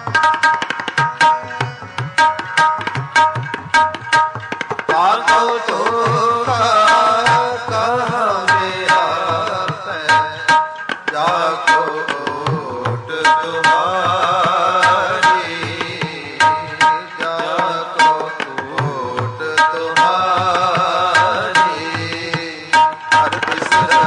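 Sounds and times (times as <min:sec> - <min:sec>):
harmonium drone: 0:00.0 - 0:24.0
tabla strokes: 0:00.0 - 0:24.0
man singing: 0:04.9 - 0:24.0.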